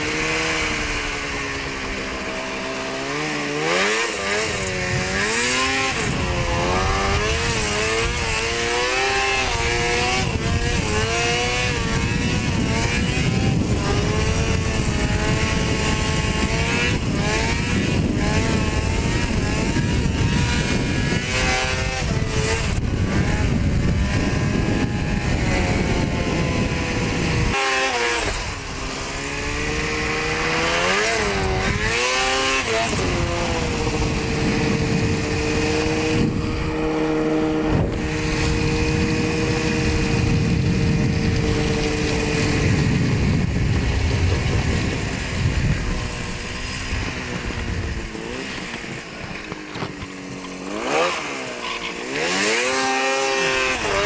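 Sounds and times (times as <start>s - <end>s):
snowmobile engine revving: 0.0s - 54.0s
steady rushing noise: 0.0s - 54.0s.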